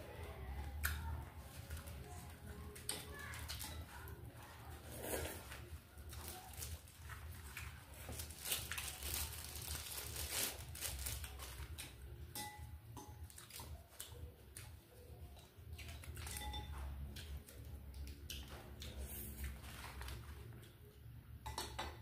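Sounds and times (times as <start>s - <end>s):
leaf wrappers rustling and tearing: 0.4s - 12.1s, 18.8s - 20.7s
chewing: 0.6s - 9.7s, 13.1s - 21.0s.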